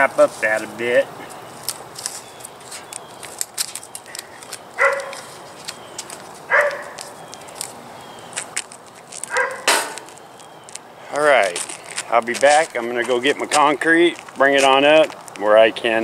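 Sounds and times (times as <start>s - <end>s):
tape crackling: 0.0s - 15.6s
tape ripping: 1.6s - 15.5s
dog barking: 4.8s - 5.3s, 6.5s - 7.0s, 9.3s - 9.7s.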